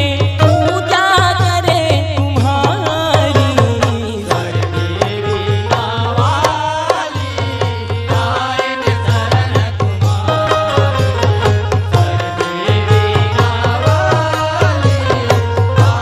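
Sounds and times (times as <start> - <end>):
hand drums keeping a beat: 0.0 - 16.0.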